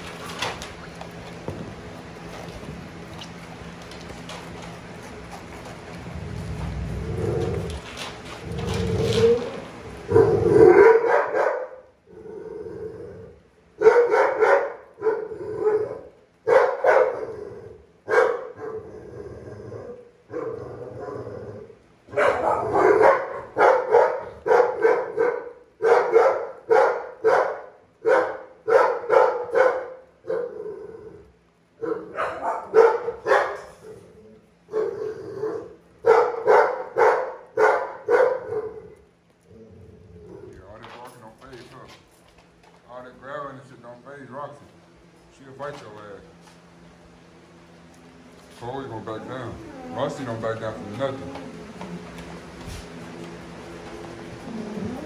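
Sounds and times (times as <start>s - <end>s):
dog barking: 10.1s - 11.8s, 13.8s - 17.2s, 18.1s - 18.8s, 22.1s - 30.5s, 31.8s - 33.8s, 34.7s - 39.0s.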